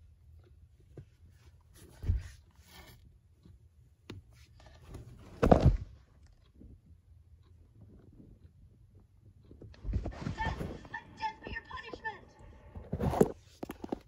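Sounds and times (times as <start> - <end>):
dull thumps: 4.9 - 6.0.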